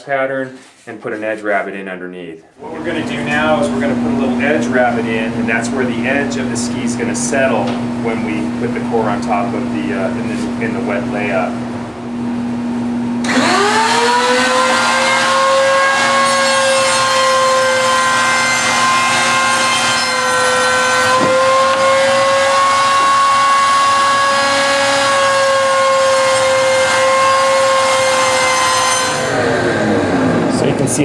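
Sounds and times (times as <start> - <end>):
router whining while cutting wood: 13.2 - 30.6.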